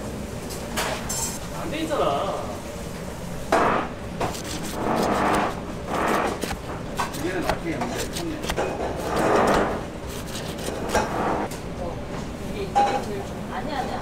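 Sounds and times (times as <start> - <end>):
knife slicing onto plastic cutting board: 4.2 - 11.5.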